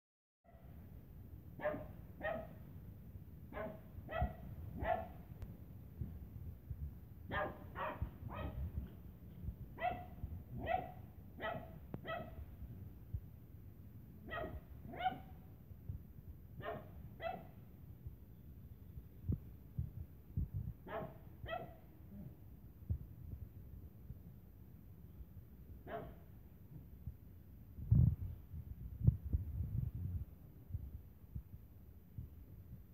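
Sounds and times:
small dog barking: 1.6 - 2.6, 3.5 - 5.3, 7.3 - 8.7, 9.8 - 12.4, 14.2 - 15.4, 16.6 - 17.6, 20.8 - 22.4, 25.8 - 26.3.

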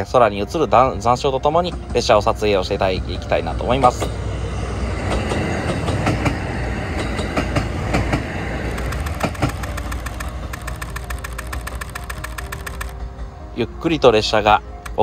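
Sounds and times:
train engine and wheels rumble: 0.0 - 15.0
wheel clicks over rail joints: 8.7 - 13.0.

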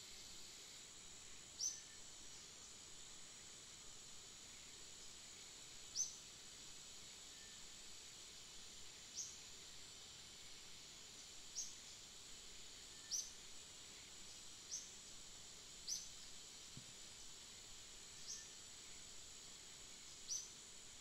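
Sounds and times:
high-pitched insect drone: 17.8 - 19.2.

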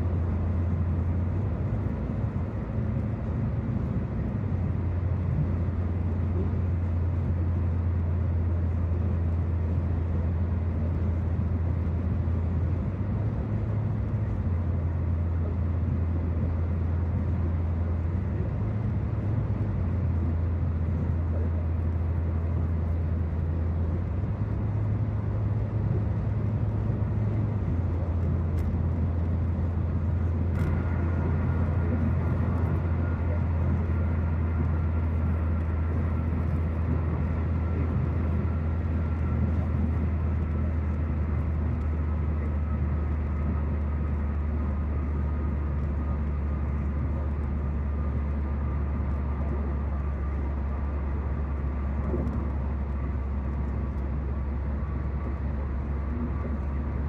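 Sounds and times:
in-cabin car road noise: 0.0 - 57.0.

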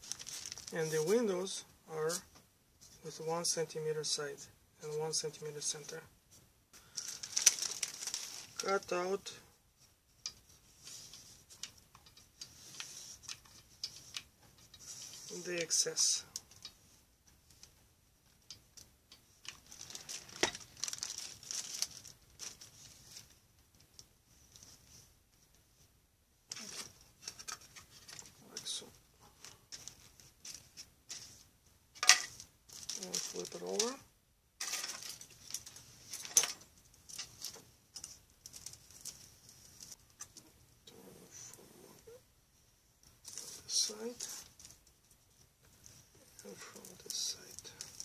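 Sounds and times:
cellophane crinkling: 0.0 - 1.2, 6.8 - 8.9, 19.4 - 24.7, 32.0 - 34.0, 34.6 - 40.0, 43.2 - 44.9, 45.7 - 48.0.

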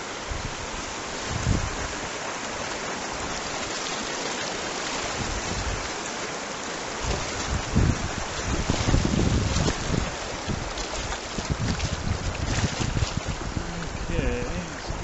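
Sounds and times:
river water rushing: 0.0 - 15.0
wind buffeting microphone: 0.2 - 2.2, 5.1 - 6.0, 7.0 - 15.0.

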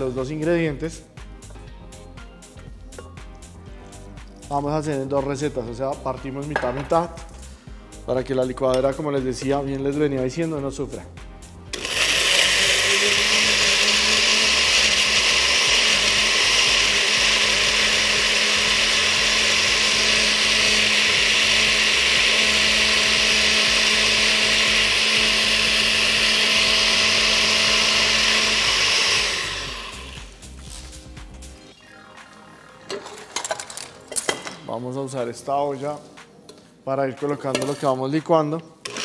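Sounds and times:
blender running: 11.7 - 30.6.

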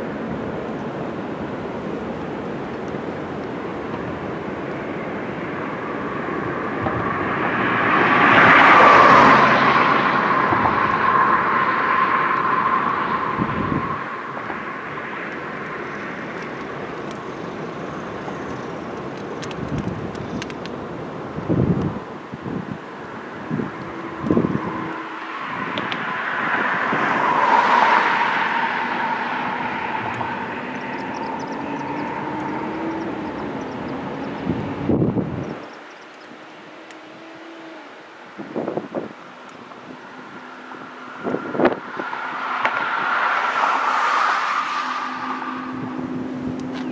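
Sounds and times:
vehicle passing close by: 5.3 - 16.4, 23.2 - 35.7, 36.5 - 46.9.

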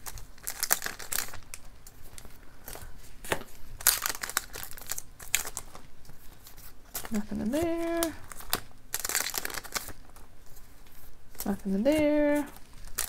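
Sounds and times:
foil wrapper tearing: 0.0 - 2.8, 3.8 - 5.8, 6.9 - 10.2, 11.4 - 13.0
foil wrapper crinkling: 0.0 - 13.0.

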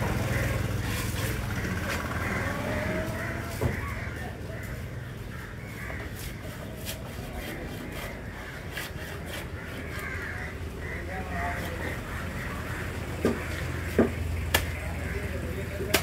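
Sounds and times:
birds calling: 0.0 - 16.0
knife scraping fish flesh: 6.2 - 10.0.

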